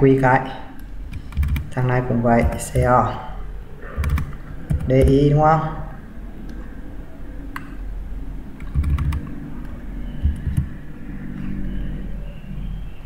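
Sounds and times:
low hum: 0:00.0 - 0:13.0
keyboard keystrokes: 0:01.1 - 0:01.8, 0:04.0 - 0:05.2, 0:08.6 - 0:10.7.

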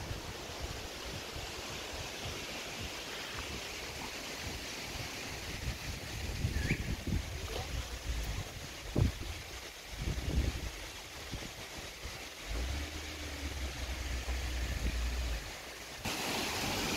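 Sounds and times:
wind buffeting microphone: 0:05.4 - 0:12.9.

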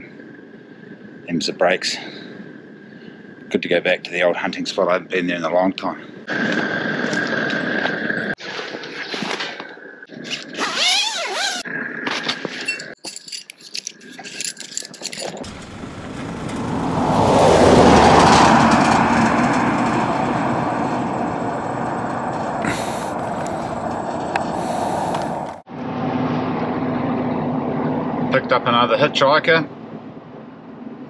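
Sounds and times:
road noise: 0:15.4 - 0:31.0
truck engine driving past: 0:15.5 - 0:28.4.

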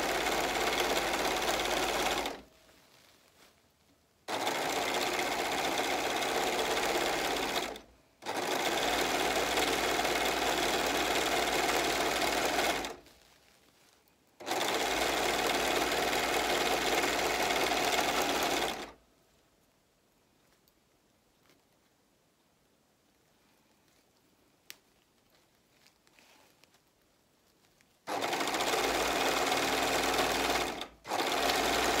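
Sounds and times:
overlock sewing machine running: 0:00.0 - 0:02.4, 0:04.3 - 0:13.0, 0:14.4 - 0:19.0, 0:28.1 - 0:32.0.

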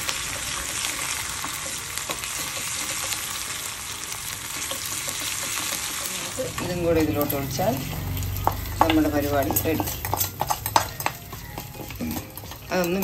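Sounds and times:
shallots sizzling in hot oil: 0:00.0 - 0:13.0
wooden spatula stirring: 0:04.4 - 0:13.0.

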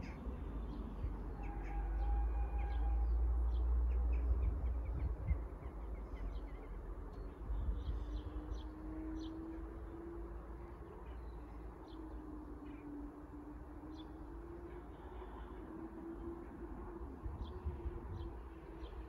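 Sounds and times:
wind rumble on microphone: 0:00.0 - 0:10.2, 0:16.2 - 0:19.0.

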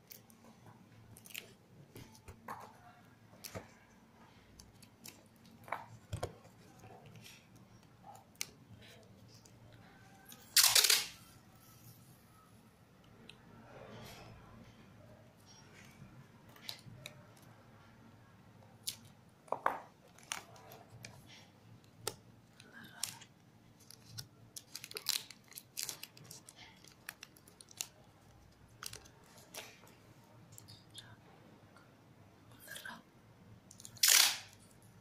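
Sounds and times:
cardboard box and tape crinkling: 0:22.0 - 0:29.9.

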